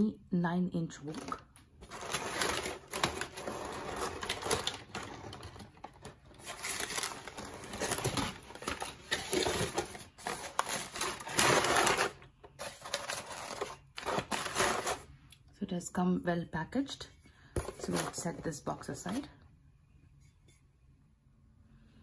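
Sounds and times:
packing paper rustling and crinkling: 1.1 - 15.1.

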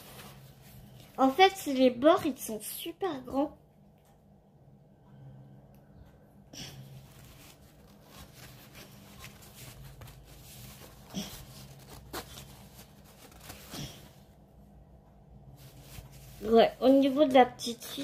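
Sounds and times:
stiff canvas rustling and crackling: 7.0 - 14.3, 15.6 - 18.0.

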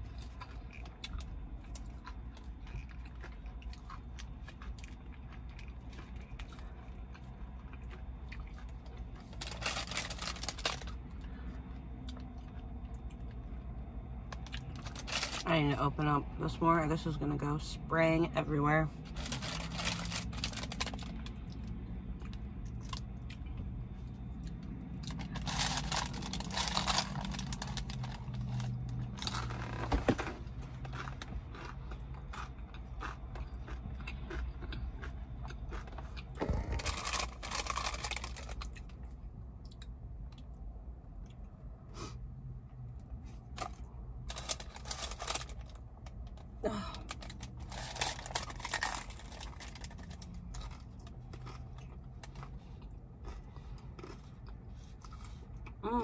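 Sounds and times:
low steady hum: 0.0 - 56.0
paper wrapper crinkling: 9.2 - 11.0, 19.1 - 21.3, 25.1 - 29.8, 36.8 - 38.8, 43.6 - 45.8, 47.1 - 50.8
person biting and chewing: 24.2 - 39.0, 47.1 - 55.8.

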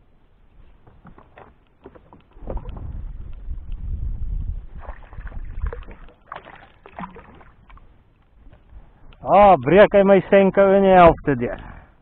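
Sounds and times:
fish splashing at the surface: 4.8 - 7.8.

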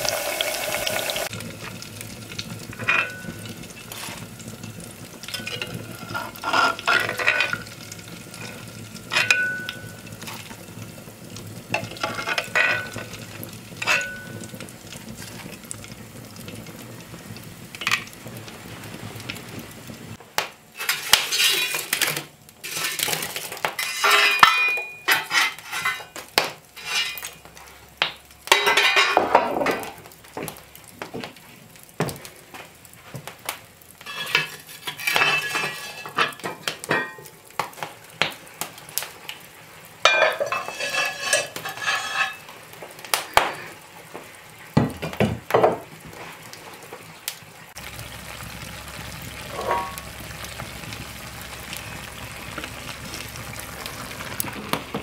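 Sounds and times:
fire and frying noise: 0.0 - 55.0
metal utensil clinking on pots: 2.8 - 3.4, 5.3 - 7.7, 8.3 - 10.4, 11.7 - 13.1, 13.8 - 14.5, 23.8 - 26.2, 26.8 - 27.4, 28.5 - 29.9, 34.0 - 37.3, 40.0 - 42.5, 49.5 - 50.0.

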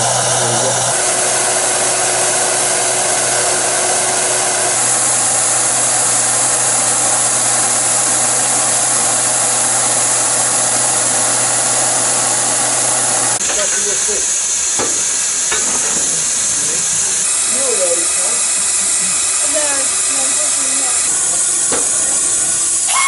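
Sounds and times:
steam locomotive hissing: 0.0 - 23.0.

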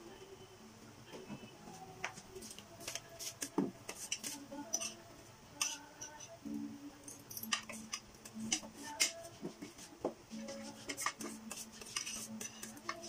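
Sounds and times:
cutlery clinking on plates: 7.4 - 9.2.

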